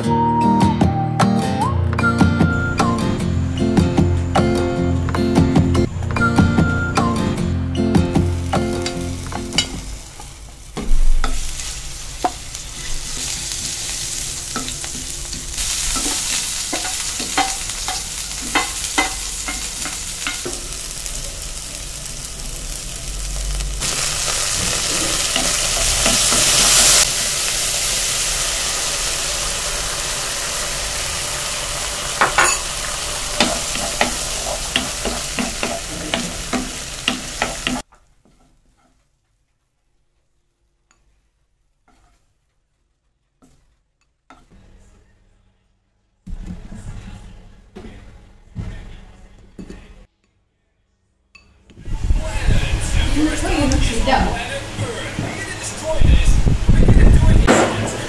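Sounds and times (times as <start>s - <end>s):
food sizzling in oil: 8.1s - 38.4s
wooden spoon scraping a pan: 33.4s - 39.4s, 41.8s - 44.6s.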